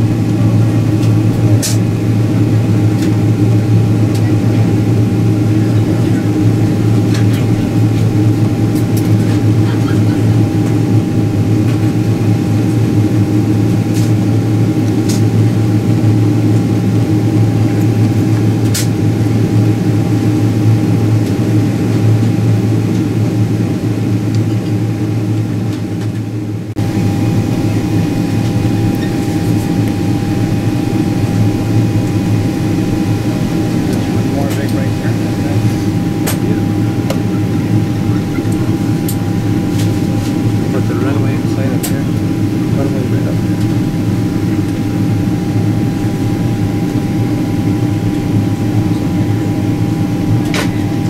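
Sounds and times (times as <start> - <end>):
airplane engine drone: 0.0 - 51.0.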